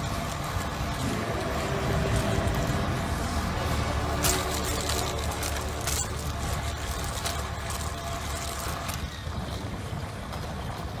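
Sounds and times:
vehicle engine and tyres rumbling: 0.0 - 11.0.

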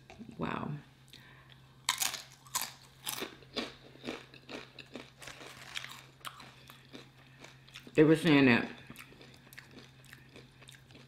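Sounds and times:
tortilla chip crunching: 1.9 - 8.0.

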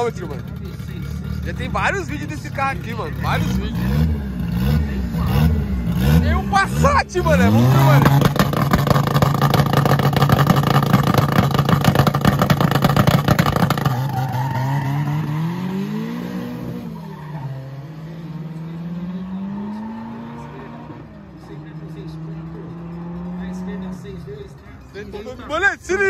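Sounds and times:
car engine revving on limiter: 0.0 - 24.5
crackling exhaust pops: 8.0 - 14.4.

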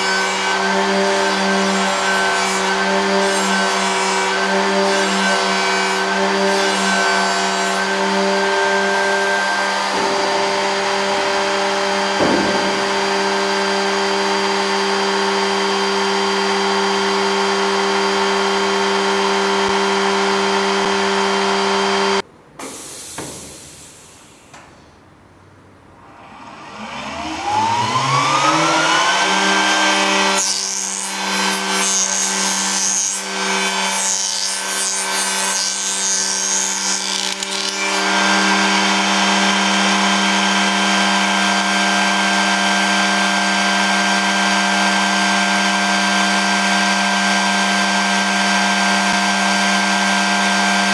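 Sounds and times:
cutter cutting edge: 0.0 - 22.2, 26.0 - 50.9
trimming machine motor whining: 0.1 - 22.2, 26.2 - 33.6.

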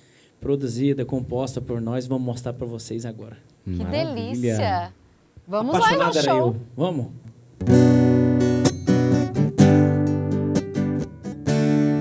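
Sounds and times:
acoustic guitar strumming chords: 7.6 - 12.0.

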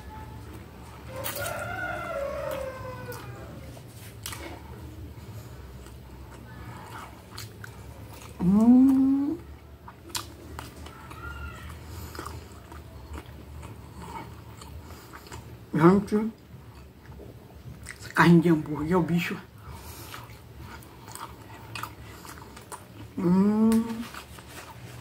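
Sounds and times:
chewing and mouth sounds: 0.0 - 25.0
person humming: 8.4 - 9.5, 23.2 - 24.1.

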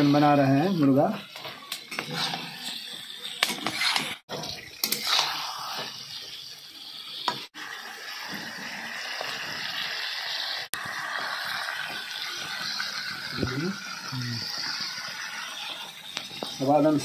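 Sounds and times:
steel spatula scraping a pan: 0.0 - 6.2
frying hiss: 0.0 - 17.0.

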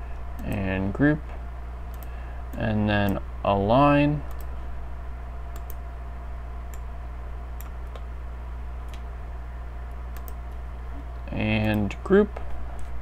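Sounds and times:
low electrical hum: 0.0 - 13.0
computer mouse clicking: 1.9 - 3.2, 4.3 - 4.5, 5.5 - 5.8, 7.6 - 8.1, 8.8 - 9.1, 10.1 - 10.6.

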